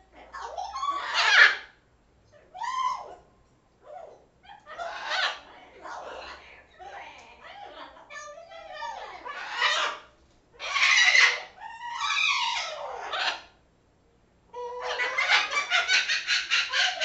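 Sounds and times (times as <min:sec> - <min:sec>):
parrots squawking: 0:00.1 - 0:01.8, 0:03.9 - 0:13.6, 0:14.6 - 0:17.0.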